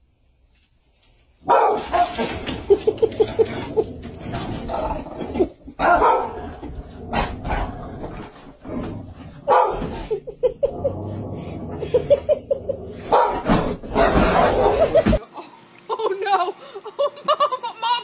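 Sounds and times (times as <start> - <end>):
dogs barking: 1.4 - 2.3, 5.8 - 6.6, 9.4 - 10.2, 13.0 - 15.2.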